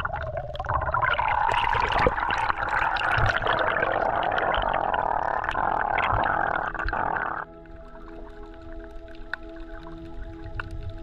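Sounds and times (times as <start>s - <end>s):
underwater rushing and bubbling: 0.0s - 11.0s
small crackling clicks: 6.1s - 11.0s.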